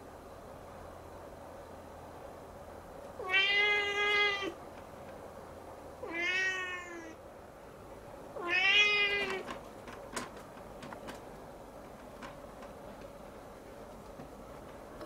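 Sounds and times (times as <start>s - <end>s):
kitten meowing: 3.2s - 4.6s, 6.0s - 7.2s, 8.4s - 9.4s.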